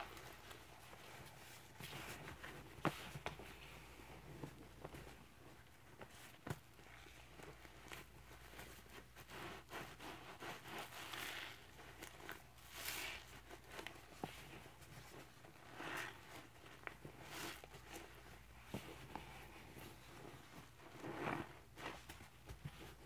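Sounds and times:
wet sponge squishing: 0:06.1 - 0:23.0.

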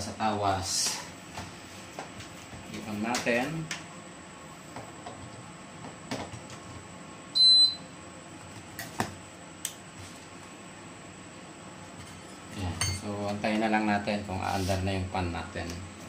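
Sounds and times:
faint high whine: 0:06.8 - 0:08.3
short electronic beep: 0:07.4 - 0:07.8.

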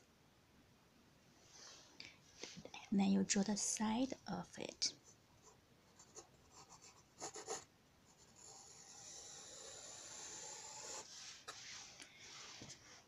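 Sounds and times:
pencil scratching on paper: 0:05.4 - 0:11.9.

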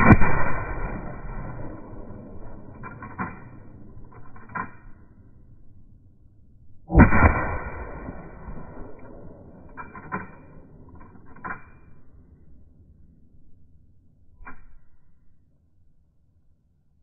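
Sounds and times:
shotgun shot: 0:00.0 - 0:04.7, 0:06.9 - 0:10.7.

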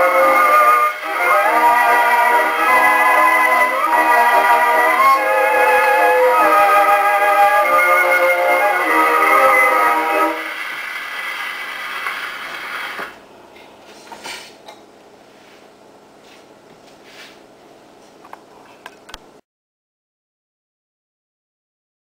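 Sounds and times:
phonograph music: 0:00.0 - 0:13.2
needle hiss: 0:10.4 - 0:13.2.

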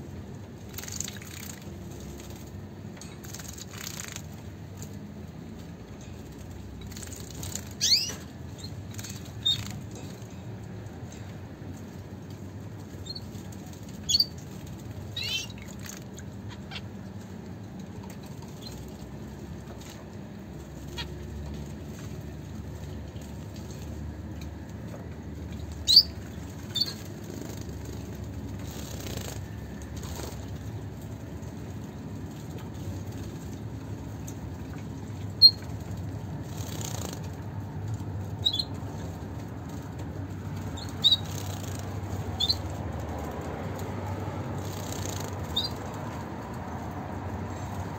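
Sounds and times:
finches high calls: 0:07.8 - 0:08.2, 0:15.2 - 0:15.6.

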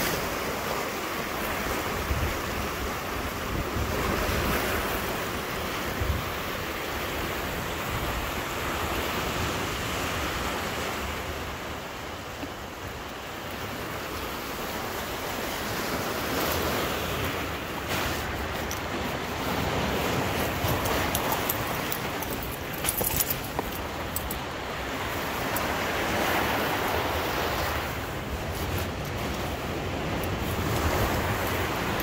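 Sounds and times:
surf washing over cobbles: 0:12.2 - 0:32.0.

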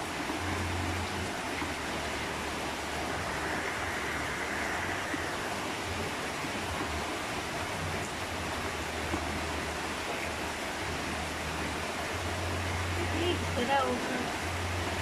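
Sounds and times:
low rumble: 0:00.0 - 0:08.8
steady rushing noise: 0:00.0 - 0:15.0.

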